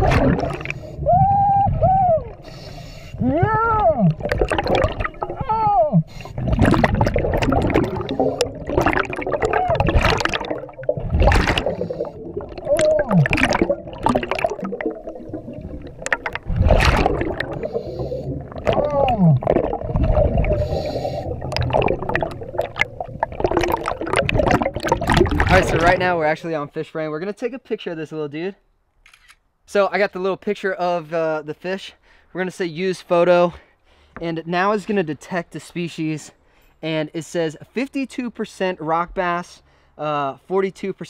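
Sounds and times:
exhaled bubbles rushing: 0:00.0 - 0:02.6, 0:03.2 - 0:26.4.

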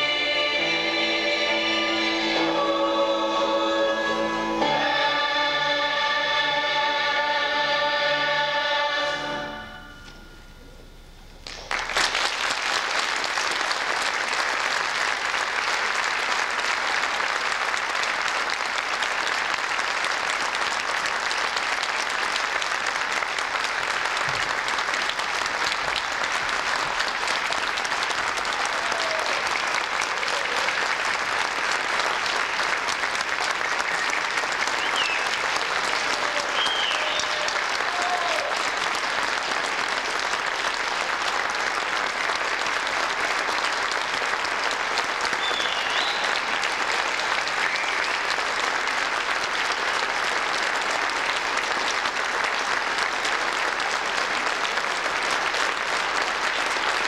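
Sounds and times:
choir chord: 0:00.0 - 0:10.8
audience applause: 0:11.4 - 0:57.0
whoops and whistles: 0:34.8 - 0:35.3, 0:36.4 - 0:37.6, 0:45.4 - 0:46.4.

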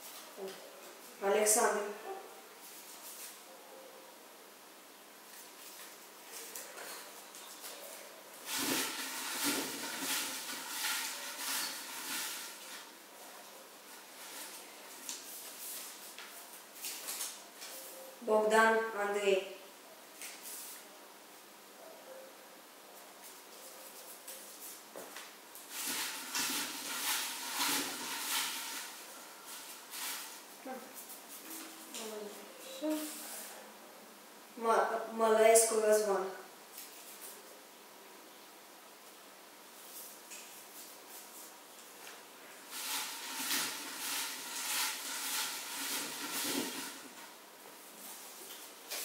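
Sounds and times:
quiet paper handling: 0:05.3 - 0:18.1
paper slips rustling in glass bowl: 0:08.4 - 0:12.9, 0:25.7 - 0:30.5, 0:42.7 - 0:47.2.

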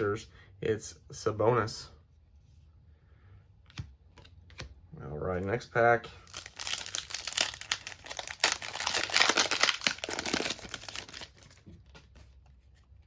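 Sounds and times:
foil wrapper crinkling and tearing: 0:06.2 - 0:11.6.

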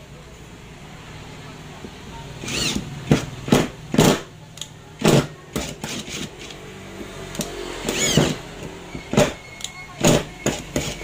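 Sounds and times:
impact driver driving screw into wood: 0:02.4 - 0:04.3, 0:05.0 - 0:06.6, 0:07.4 - 0:09.4, 0:10.0 - 0:11.0.

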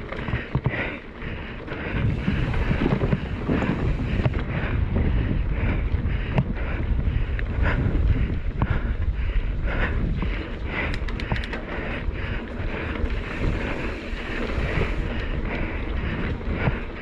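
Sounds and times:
tyres rumbling on dirt: 0:00.0 - 0:05.3
bike clicks and rattles: 0:00.0 - 0:17.0
wind buffeting microphone: 0:00.0 - 0:17.0.

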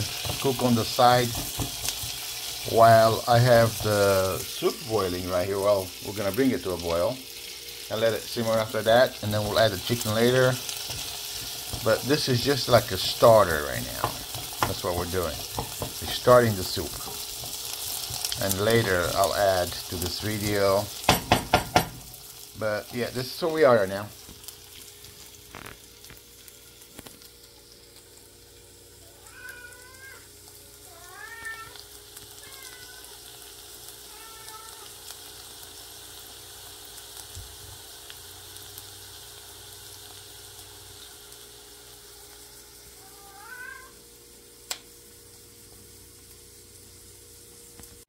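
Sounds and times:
pot hissing on stove: 0:00.0 - 0:48.0
cat meowing: 0:29.0 - 0:30.3, 0:30.9 - 0:31.8, 0:32.4 - 0:33.2, 0:34.1 - 0:34.9, 0:43.0 - 0:44.0.

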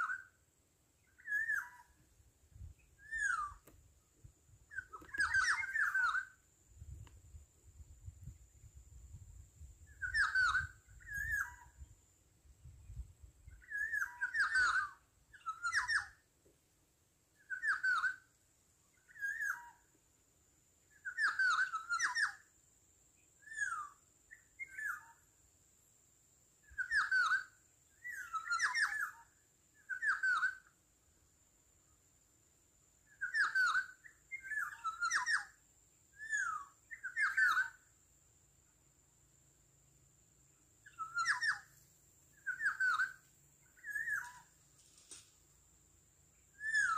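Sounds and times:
bird whistled calls: 0:00.0 - 0:00.4, 0:01.0 - 0:02.0, 0:03.0 - 0:03.7, 0:04.7 - 0:06.4, 0:09.9 - 0:11.8, 0:13.5 - 0:16.2, 0:17.4 - 0:18.3, 0:19.0 - 0:19.8, 0:20.9 - 0:22.5, 0:23.4 - 0:25.2, 0:26.6 - 0:30.7, 0:33.1 - 0:35.6, 0:36.2 - 0:37.8, 0:40.8 - 0:44.5, 0:46.5 - 0:46.9.

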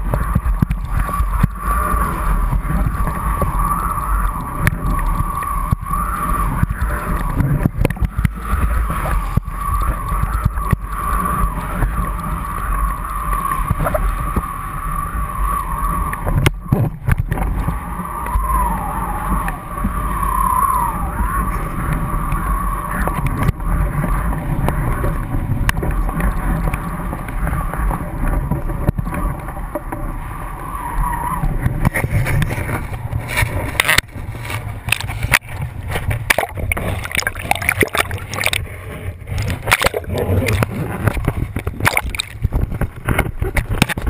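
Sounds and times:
wind buffeting camera: 0:00.0 - 0:44.0
wavering high whistle: 0:17.8 - 0:21.6.

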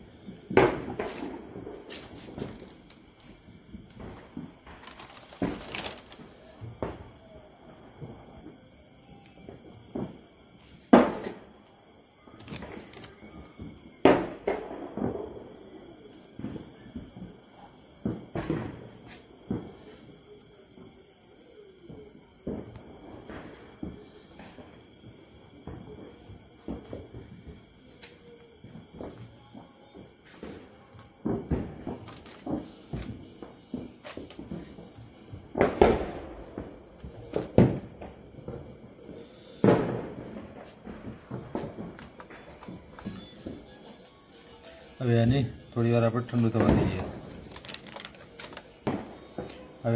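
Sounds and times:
crickets chirping: 0:00.0 - 0:49.9
knocks and plastic crinkles: 0:00.3 - 0:07.1, 0:12.3 - 0:15.2, 0:30.0 - 0:44.8, 0:45.5 - 0:49.9
plastic sheet rustling: 0:03.8 - 0:06.6, 0:12.4 - 0:13.2, 0:31.9 - 0:33.1, 0:45.8 - 0:48.9.

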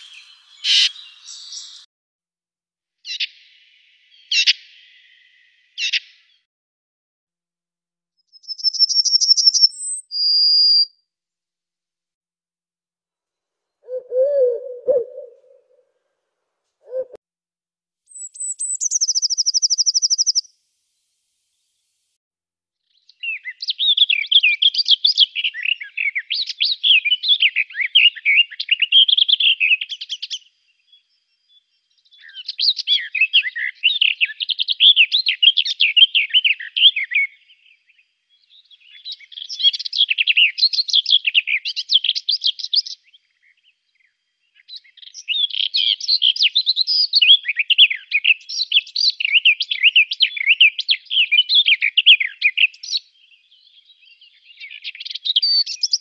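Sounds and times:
songbird trilling and chattering: 0:00.0 - 0:01.8, 0:08.4 - 0:10.6, 0:18.1 - 0:20.4.

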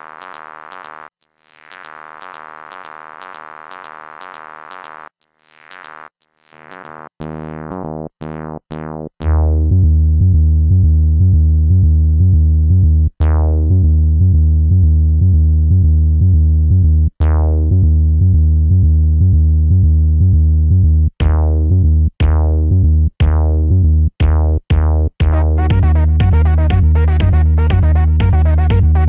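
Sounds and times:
synthesizer plucked notes: 0:00.0 - 0:29.0
bass-heavy arpeggiated synth pattern: 0:06.6 - 0:29.0.

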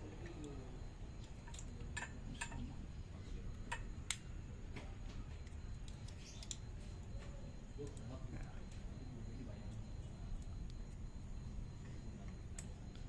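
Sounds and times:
small metallic clicks: 0:05.4 - 0:06.7.

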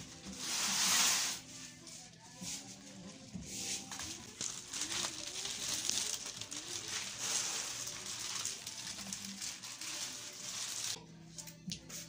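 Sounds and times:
plastic bag crinkling: 0:03.9 - 0:11.0.

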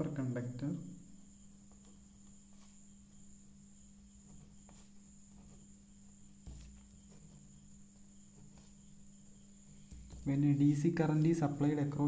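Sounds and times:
pen writing on paper: 0:04.2 - 0:05.8, 0:06.4 - 0:07.7.

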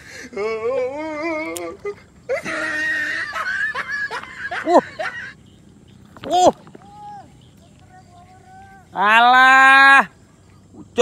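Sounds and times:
man laughing: 0:00.0 - 0:05.5.

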